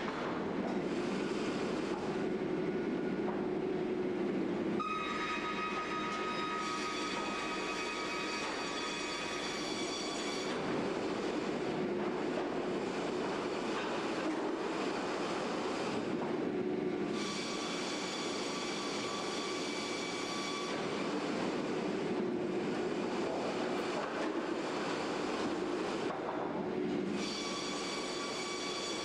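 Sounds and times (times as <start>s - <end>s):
high saw whine: 4.8s - 10.7s, 17.2s - 21.4s, 27.2s - 29.0s
sawmill mechanical din: 4.8s - 29.0s.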